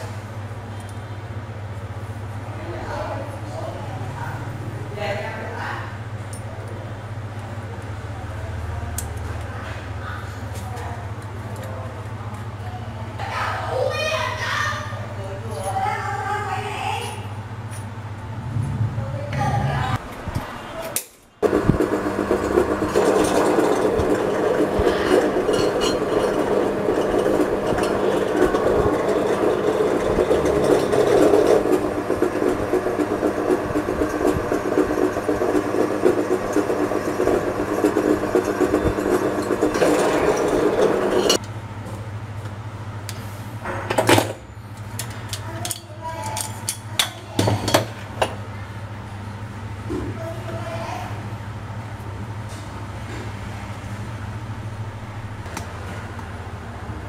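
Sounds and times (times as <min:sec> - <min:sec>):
drill press running: 0:21.4 - 0:41.4.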